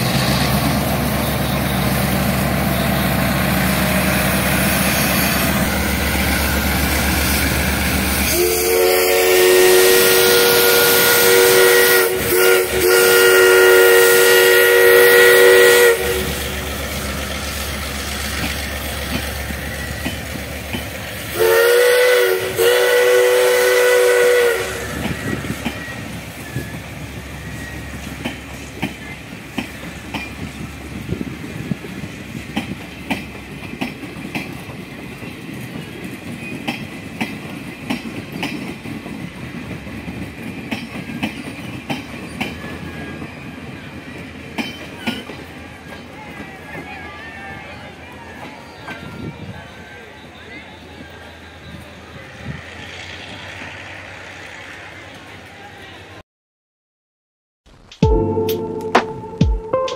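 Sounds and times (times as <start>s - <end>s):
diesel locomotive engine running: 0.0s - 38.0s
steam locomotive chord whistle: 1.3s - 16.8s, 21.3s - 26.7s, 58.0s - 59.9s
train wheels clicking over rail joints: 16.7s - 21.3s, 24.8s - 46.9s.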